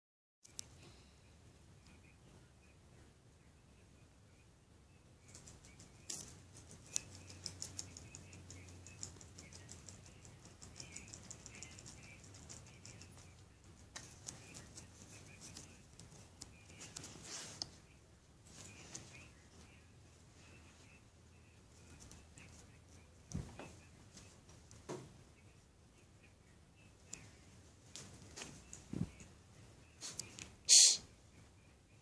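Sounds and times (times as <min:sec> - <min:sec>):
clicks and scratches on microphone: 0:27.9 - 0:29.4.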